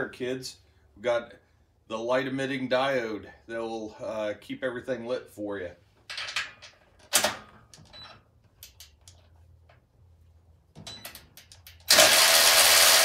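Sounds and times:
ratchet motor running: 11.8 - 13.0.

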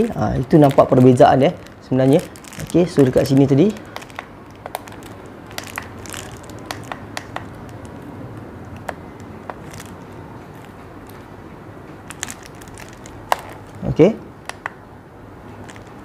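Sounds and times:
low room noise: 0.0 - 16.0.

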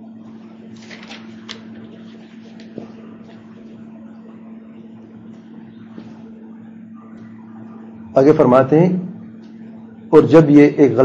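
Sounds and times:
low electrical hum: 0.0 - 11.0.

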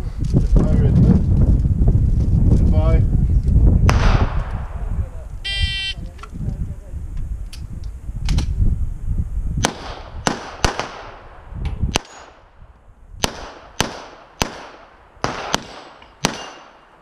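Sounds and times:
handgun shots with echo: 13.2 - 16.8.

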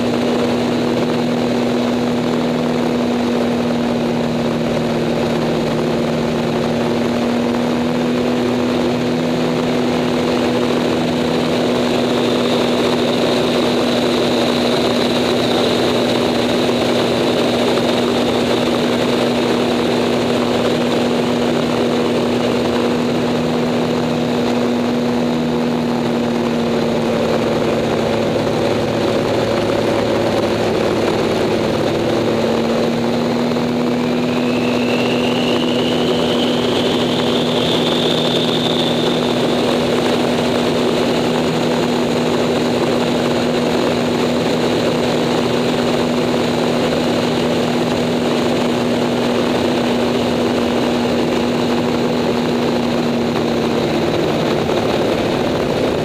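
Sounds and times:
propeller plane engine running: 0.0 - 56.0
rush of air noise: 0.0 - 56.0
faint high whistle: 34.0 - 39.6.

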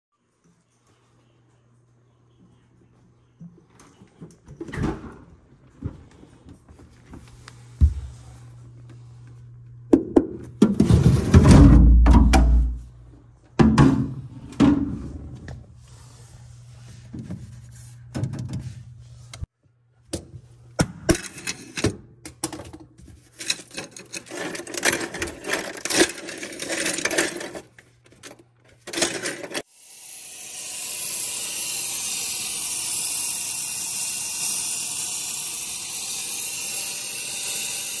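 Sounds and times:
steamer hissing: 29.6 - 38.0.

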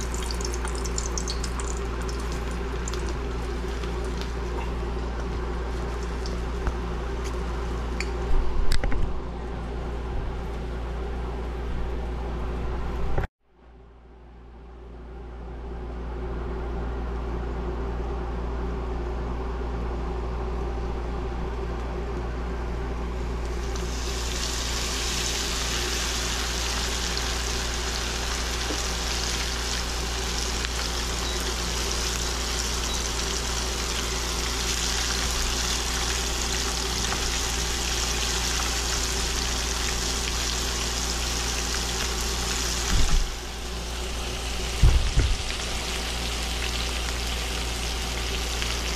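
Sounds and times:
fish frying in hot oil: 0.0 - 6.6, 23.4 - 48.9.

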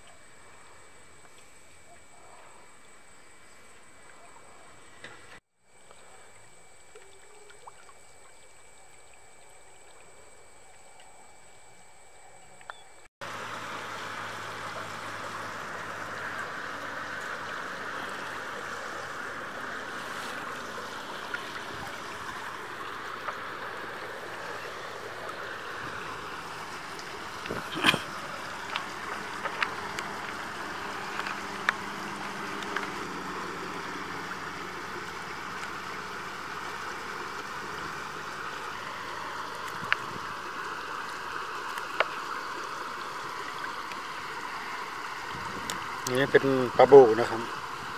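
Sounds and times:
water taps and splashes: 13.2 - 47.9.

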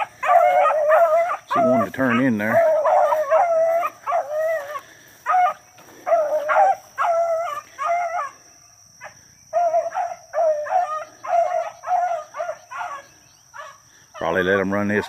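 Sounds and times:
hounds baying: 0.0 - 15.0.

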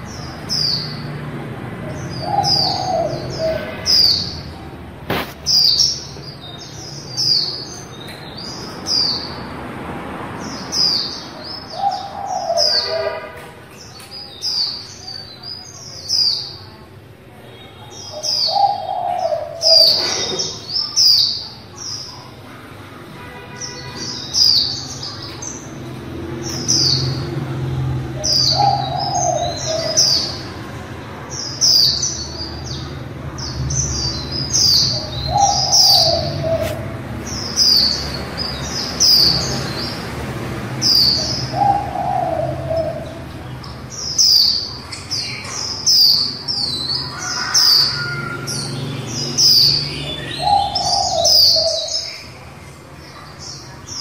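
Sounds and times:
bird high chirping calls: 1.9 - 9.4, 10.4 - 13.2, 28.2 - 30.6, 31.3 - 40.1, 40.8 - 52.4.

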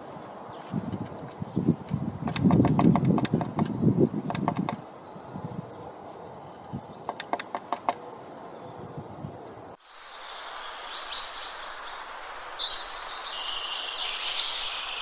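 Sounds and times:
bird pecking on wood: 2.2 - 4.8, 7.1 - 8.0.

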